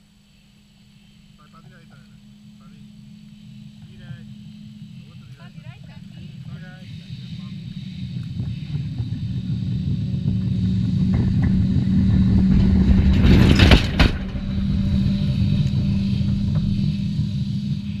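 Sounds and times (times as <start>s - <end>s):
electric tram rolling on rails: 1.5s - 18.0s
tram wheels clacking: 5.4s - 18.0s.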